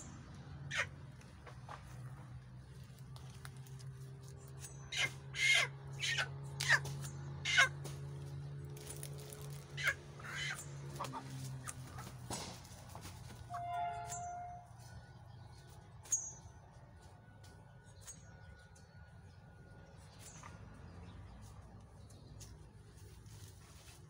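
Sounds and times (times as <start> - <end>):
chicken squawking: 0.7 - 0.9, 4.9 - 6.8, 7.4 - 7.7, 9.8 - 12.1.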